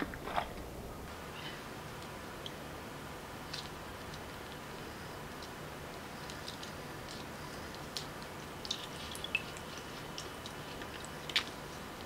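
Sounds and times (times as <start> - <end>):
water drips and splashes: 8.0 - 11.6.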